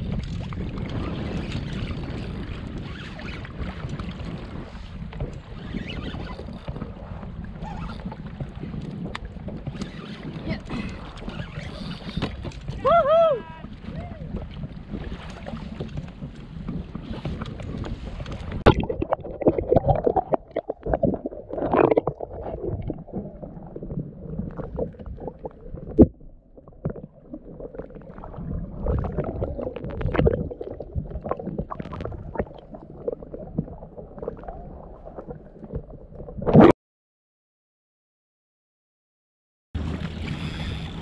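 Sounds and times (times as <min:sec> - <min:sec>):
wind on microphone: 0:00.0 - 0:35.4
water gurgling underwater: 0:18.4 - 0:36.7.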